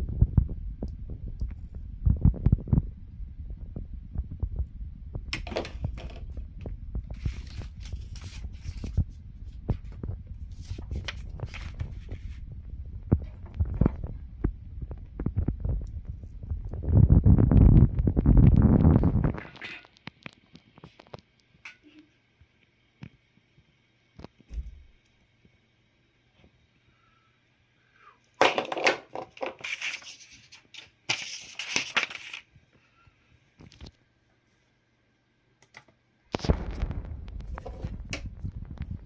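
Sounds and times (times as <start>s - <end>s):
low rumbling handling noise: 0.0s - 19.5s, 36.4s - 39.0s
paper rustling and crinkling: 5.4s - 12.4s, 28.8s - 32.5s.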